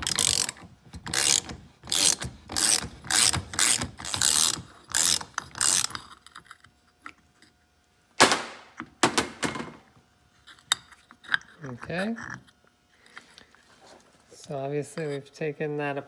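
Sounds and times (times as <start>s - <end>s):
socket ratchet clicking: 0.0s - 6.0s.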